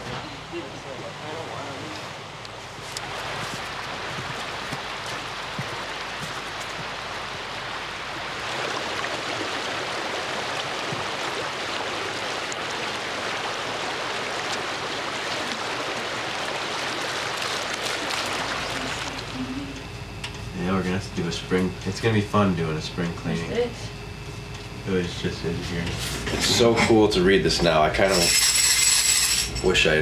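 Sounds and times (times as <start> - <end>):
stream water rushing: 0.0 - 19.8.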